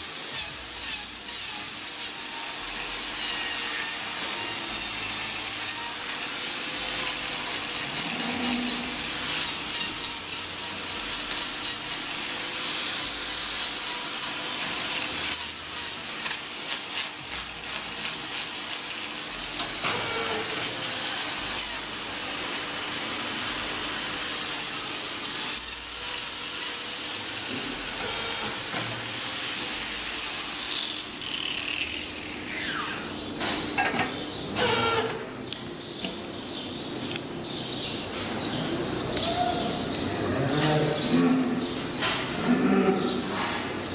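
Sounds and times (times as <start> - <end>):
angle grinder grinding hoof: 0.0 - 33.2, 34.0 - 35.3.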